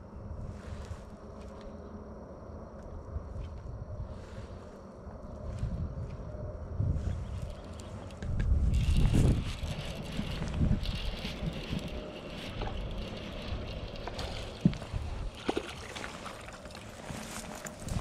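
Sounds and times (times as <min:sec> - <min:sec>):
wind rumbling on microphone: 0:00.0 - 0:18.0
light knocks of fishing reel: 0:07.3 - 0:18.0
water sloshing against boat: 0:09.6 - 0:18.0.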